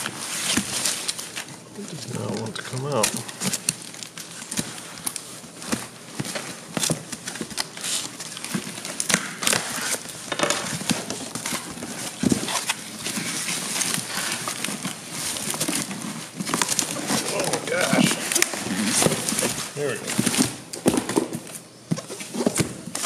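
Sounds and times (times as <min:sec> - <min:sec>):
plastic wrapper crackling and rustling: 0:00.0 - 0:20.8
packing tape tearing: 0:00.0 - 0:23.0.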